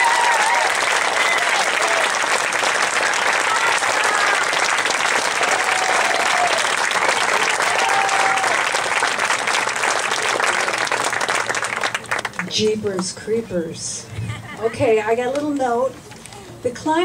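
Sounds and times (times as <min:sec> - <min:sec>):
crowd applauding: 0:00.0 - 0:12.6.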